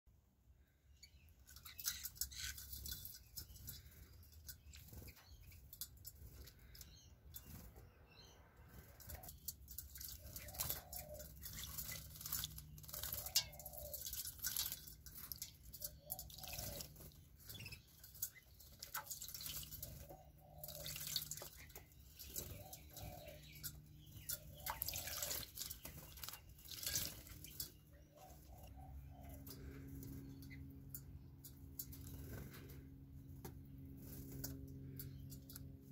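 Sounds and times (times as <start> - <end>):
water splashing and dripping: 1.5 - 7.6, 9.0 - 28.7.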